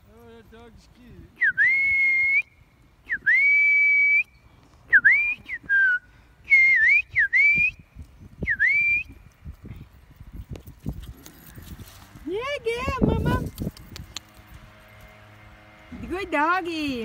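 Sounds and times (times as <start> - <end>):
person whistling: 1.4 - 7.8, 8.4 - 9.2.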